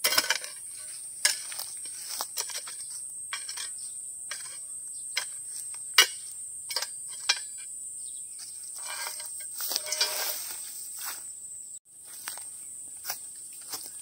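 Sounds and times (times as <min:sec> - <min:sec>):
insects buzzing: 0:00.1 - 0:14.0
rustling scrape: 0:08.7 - 0:11.2.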